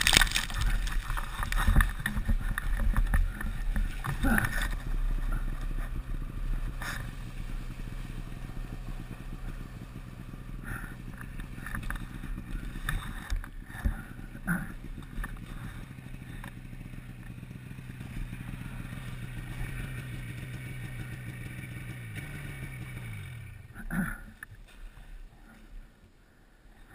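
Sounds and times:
knocks and rustles: 0.0 - 6.0
snowmobile engine idling: 0.0 - 26.9.

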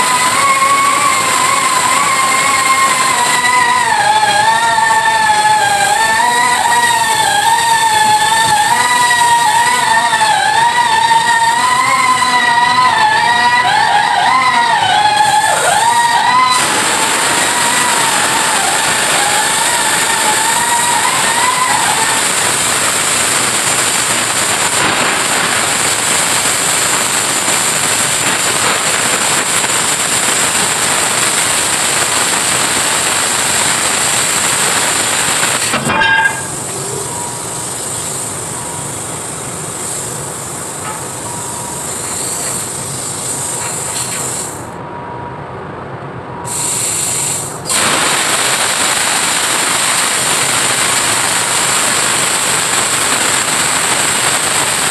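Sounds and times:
plasma cutter hissing: 0.0 - 13.2, 15.0 - 44.8, 46.4 - 54.9
plasma cutter click: 21.3 - 36.8, 40.8 - 44.6, 46.5 - 54.9.

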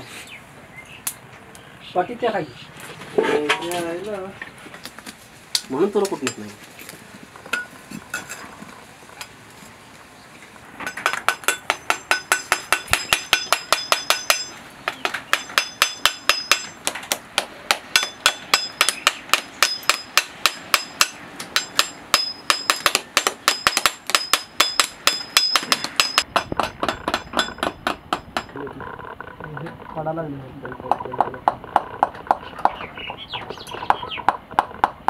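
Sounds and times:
hammer tapping hard coconut shell: 11.0 - 28.5, 33.9 - 35.0.

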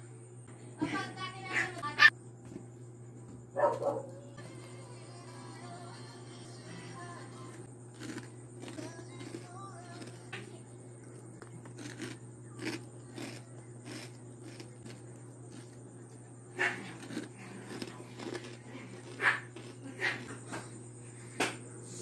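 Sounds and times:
steady low hum: 0.0 - 22.0
pork rinds crunching: 7.9 - 10.4, 11.1 - 15.9, 16.6 - 20.4.

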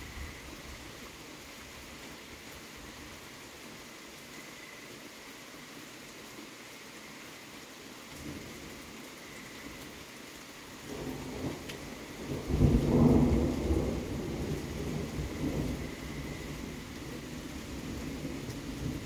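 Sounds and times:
steady rain: 0.0 - 19.0
thunder rumbling: 10.9 - 19.0.

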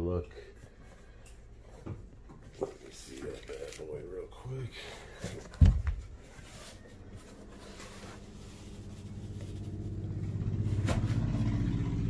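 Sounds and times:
low engine hum: 8.2 - 12.0.

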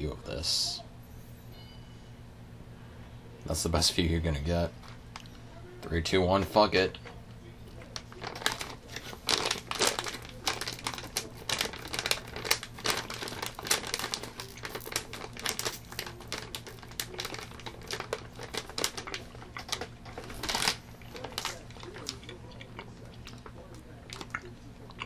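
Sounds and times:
plastic candy bag crinkling: 7.7 - 25.0.

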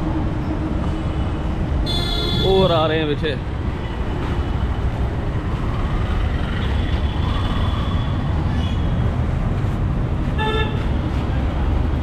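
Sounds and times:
street traffic rumble: 0.0 - 12.0
car horn toot: 1.8 - 2.8.

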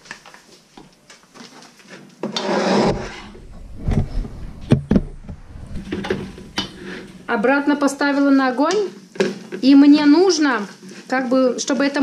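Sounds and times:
pot sliding on hob: 2.3 - 8.1.

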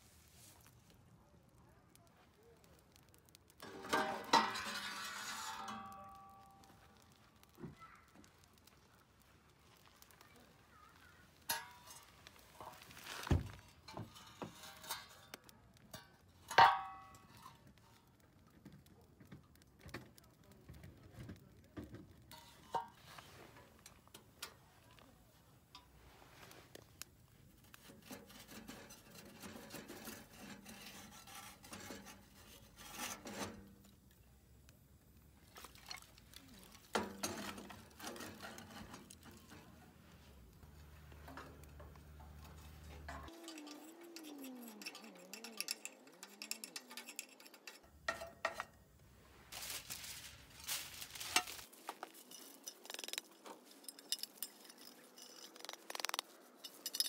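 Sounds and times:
sheet steel knocking and scraping: 3.6 - 6.6, 11.4 - 15.4, 16.5 - 17.5, 21.8 - 24.2, 27.7 - 33.9, 36.9 - 40.0, 40.6 - 48.9.

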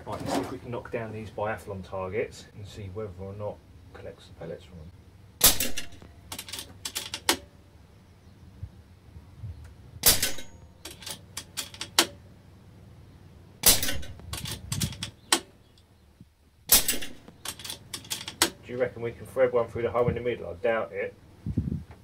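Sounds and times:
air rifle shots: 5.4 - 7.5, 10.0 - 12.2, 13.6 - 15.5, 16.7 - 18.6
sharp metal clicks: 5.4 - 7.6, 10.0 - 12.3, 13.6 - 15.9, 16.7 - 18.6.

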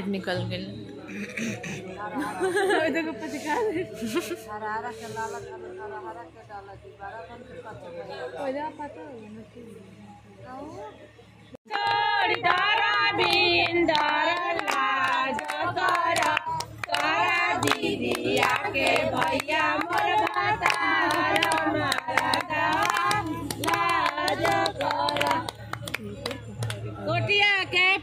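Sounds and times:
women singing together: 11.7 - 26.4
hand claps: 11.7 - 27.0.

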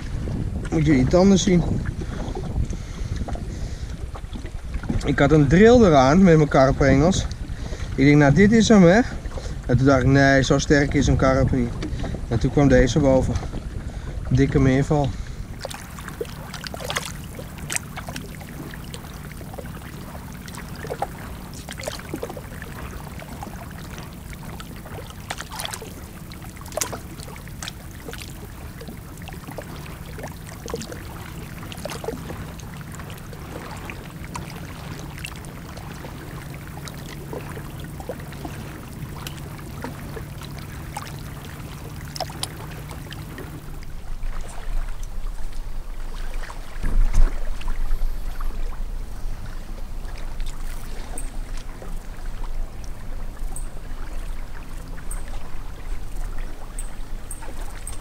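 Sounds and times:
low motor hum: 0.0 - 58.0
water trickling and splashing: 0.0 - 58.0.

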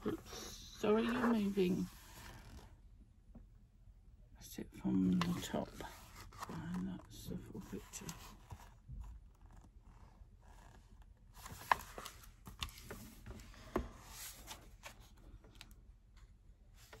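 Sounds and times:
paper rustling: 11.3 - 15.7.

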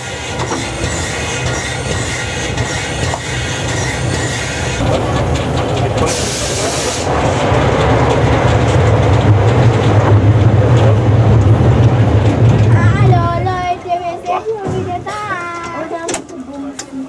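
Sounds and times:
steam locomotive running gear rattle: 0.0 - 17.0
steam hiss: 6.1 - 7.1.

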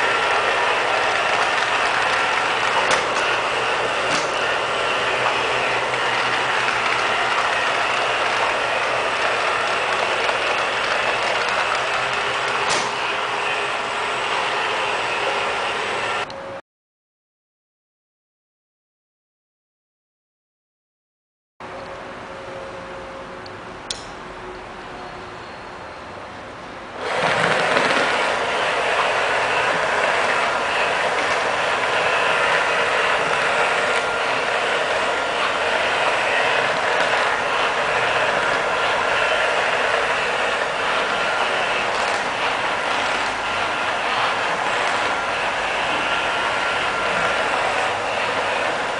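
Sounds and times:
robot vacuum cleaner whirring: 0.0 - 16.3, 27.0 - 48.9
sharp click: 23.9 - 24.2.

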